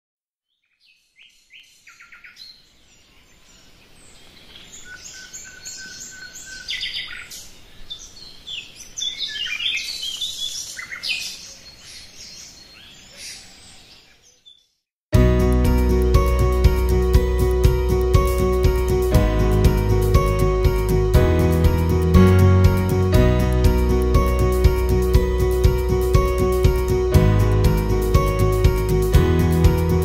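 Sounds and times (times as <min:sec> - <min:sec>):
birds chirping and singing: 0:00.8 - 0:14.7.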